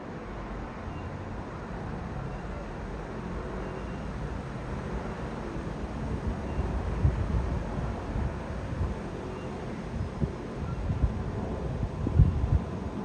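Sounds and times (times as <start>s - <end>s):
jet engine roar overhead: 4.5s - 13.0s
wind on microphone: 6.0s - 13.0s.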